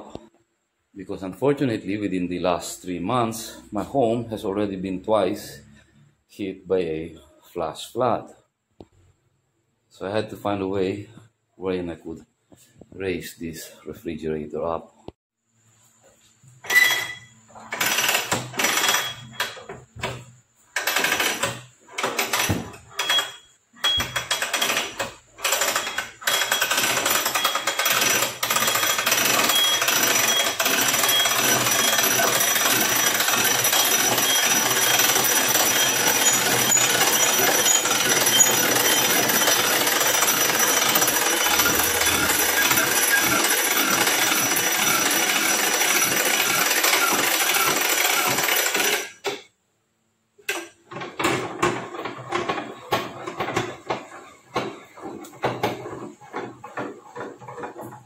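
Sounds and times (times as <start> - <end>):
crank mechanism rattling: 16.6 - 49.5, 50.4 - 58.0.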